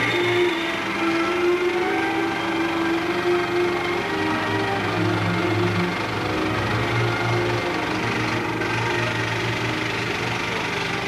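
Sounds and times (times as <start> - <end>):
film projector running: 0.0 - 11.0
film soundtrack music: 0.0 - 11.0.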